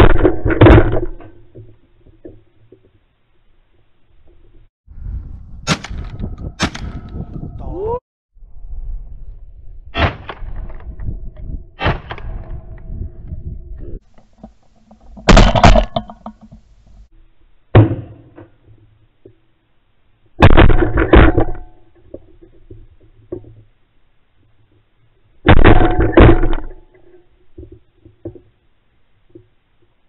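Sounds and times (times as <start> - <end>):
shotgun shots: 5.6 - 7.2, 10.0 - 10.6, 11.8 - 12.4.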